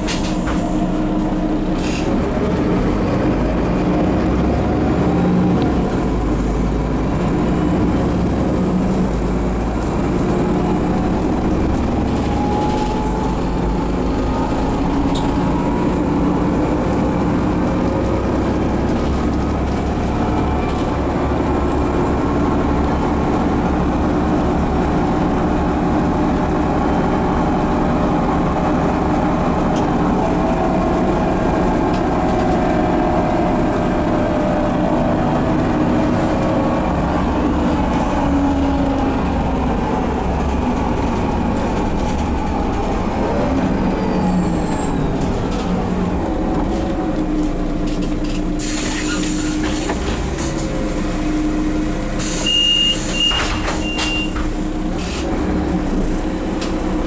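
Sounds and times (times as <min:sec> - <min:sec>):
bus diesel engine droning: 0:00.0 - 0:57.0
road noise: 0:00.0 - 0:57.0.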